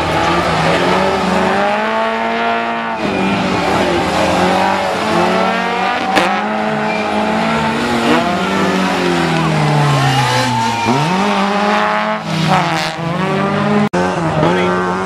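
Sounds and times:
car engine revving: 0.0s - 15.0s
tyres squealing: 2.2s - 12.7s.

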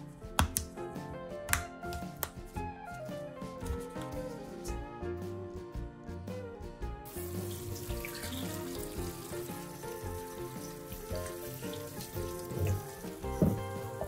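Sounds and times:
background music: 0.0s - 14.0s
tap water running into a sink: 7.1s - 14.0s
water splashing over tomatoes: 7.1s - 14.0s.

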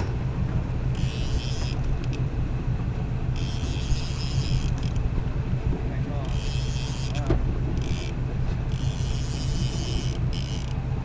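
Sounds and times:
boat engine rumbling: 0.0s - 11.0s.

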